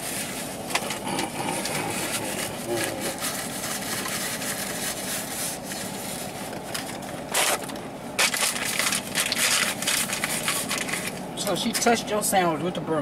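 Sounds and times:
paper wrapper crinkling: 1.6s - 11.2s.

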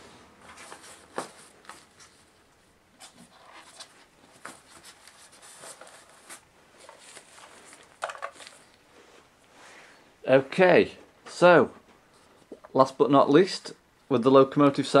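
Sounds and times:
soft rustling: 0.0s - 10.0s.

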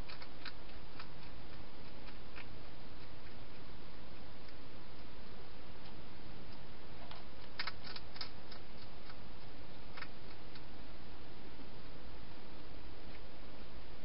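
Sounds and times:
hedgehog eating clicks and crunches: 0.0s - 10.8s.

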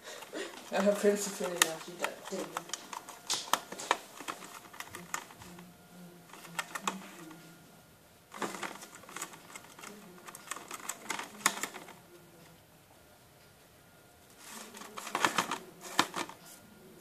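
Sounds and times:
gerbil gnawing cardboard: 0.0s - 5.7s, 8.4s - 12.0s.

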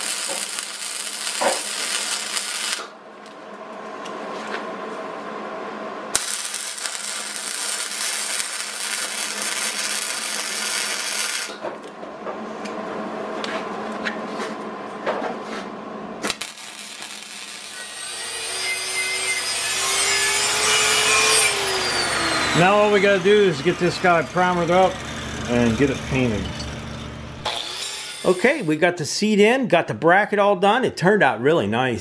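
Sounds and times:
welder arc crackling: 0.0s - 3.0s, 6.1s - 11.6s, 16.2s - 28.8s
angle grinder whining on steel: 6.2s - 11.6s, 16.7s - 28.8s.

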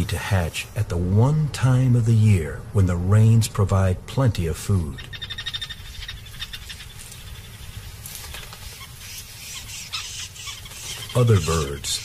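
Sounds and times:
faint outdoor ambience: 0.0s - 12.0s
animal chattering call: 5.0s - 7.9s, 8.6s - 12.0s.

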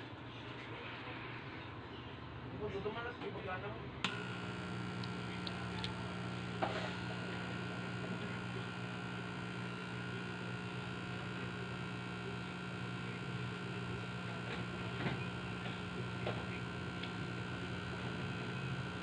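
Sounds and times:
electrical mains hum: 4.0s - 19.0s
high constant whine: 4.1s - 19.0s.

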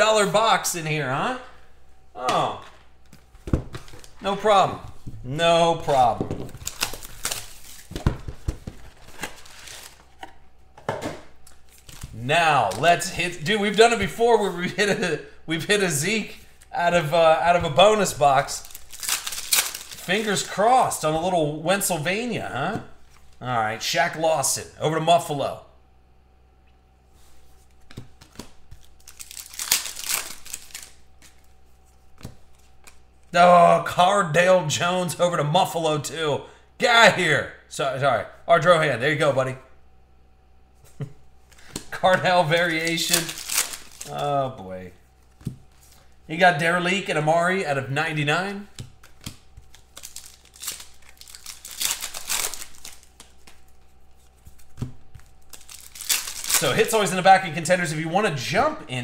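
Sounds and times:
cards and packaging rustling: 3.0s - 5.2s, 5.8s - 14.6s, 17.5s - 21.2s, 27.2s - 33.1s, 41.5s - 44.5s, 48.6s - 57.4s
card edges clicking: 27.8s - 31.4s, 41.5s - 44.2s, 48.7s - 53.7s.

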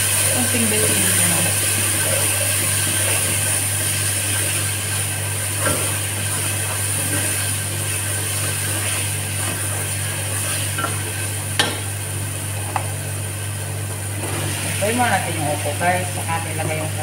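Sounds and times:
vegetables sizzling in oil: 0.0s - 17.0s
steady low hum: 4.2s - 17.0s
spatula knocking against pot: 11.6s - 11.9s.

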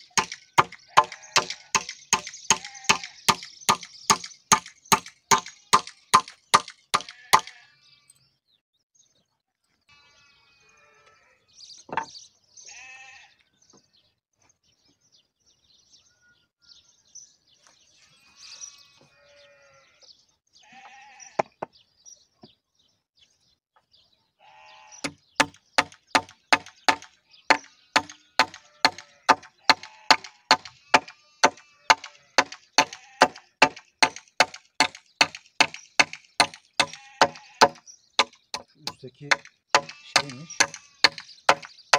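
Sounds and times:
hammer striking nails: 0.0s - 7.5s, 25.1s - 41.8s
animals bleating: 0.3s - 1.9s, 2.5s - 3.3s, 7.0s - 8.2s, 9.9s - 11.6s, 12.6s - 13.4s, 18.0s - 21.5s, 24.4s - 25.2s, 27.5s - 33.6s, 36.8s - 37.8s, 38.9s - 41.3s.

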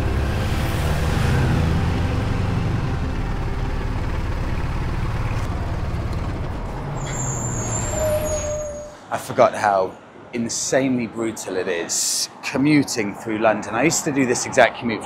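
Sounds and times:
motorcycle engine running: 0.0s - 6.7s
road noise: 0.0s - 15.0s.

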